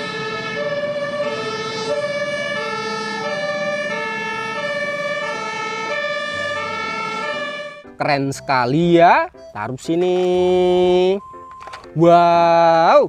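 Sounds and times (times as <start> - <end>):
two-tone emergency siren: 0.0 - 9.8.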